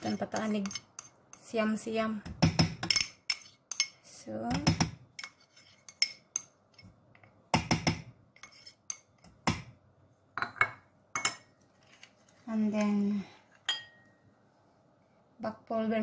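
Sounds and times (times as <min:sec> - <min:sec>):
metal spoon scraping pot: 0:00.0 - 0:01.6, 0:02.8 - 0:04.2, 0:05.1 - 0:06.9, 0:08.3 - 0:09.3.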